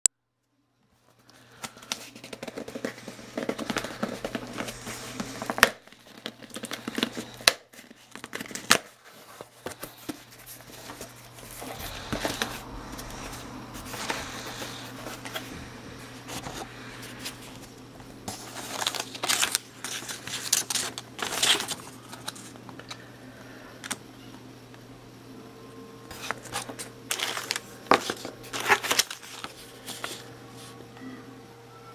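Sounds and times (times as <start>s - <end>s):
paper leaflets crinkling: 1.1s - 23.1s, 26.1s - 30.8s
packing tape tearing: 1.3s - 12.6s, 18.3s - 22.9s, 26.1s - 30.3s
cardboard flaps rustling: 1.7s - 22.3s.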